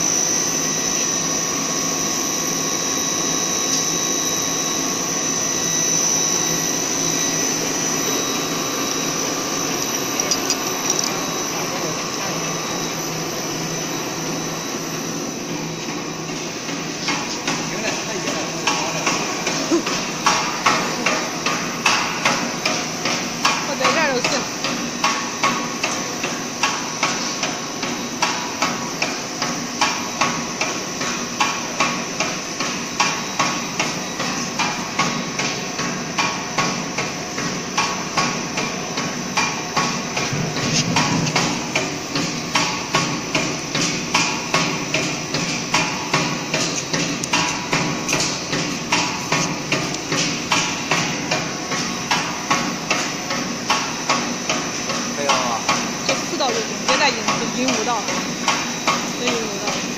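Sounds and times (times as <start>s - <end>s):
motor hum: 0.0s - 26.8s
rotary cutter knocking: 9.7s - 11.2s.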